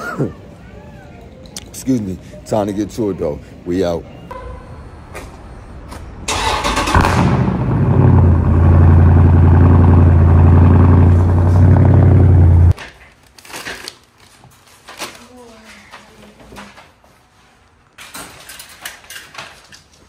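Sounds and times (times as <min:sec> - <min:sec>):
car engine starting and idling: 0:06.3 - 0:12.8.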